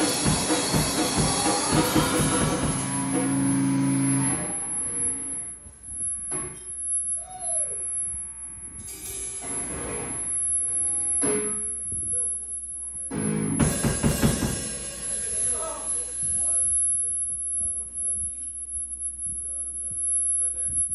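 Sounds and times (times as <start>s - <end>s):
strummed guitar chord: 0.0s - 5.3s, 13.1s - 15.2s
electric guitar notes: 0.0s - 5.5s, 8.8s - 11.8s, 13.1s - 16.0s.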